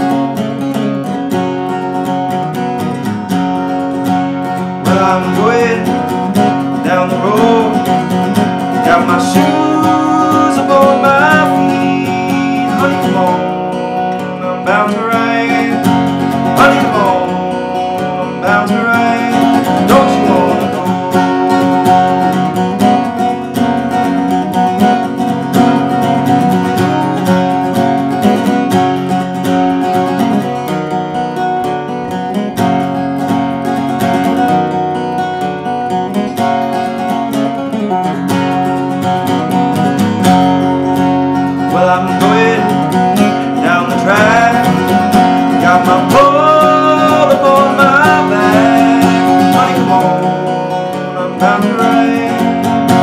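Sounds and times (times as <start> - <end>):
acoustic guitar picking and strumming: 0.0 - 53.0
man singing: 4.4 - 23.1, 41.4 - 53.0.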